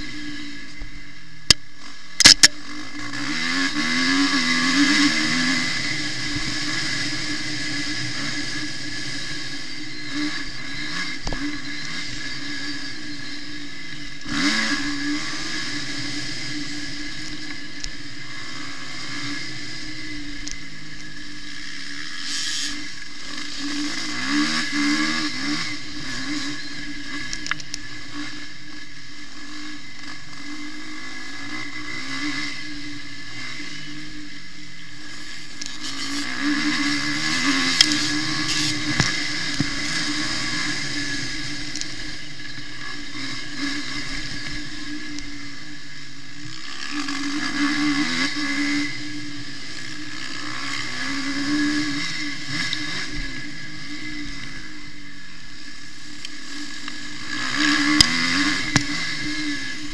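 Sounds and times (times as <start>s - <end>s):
motocross engine revving: 0.0s - 59.9s
sharp clicks: 1.4s - 2.6s, 27.2s - 27.9s.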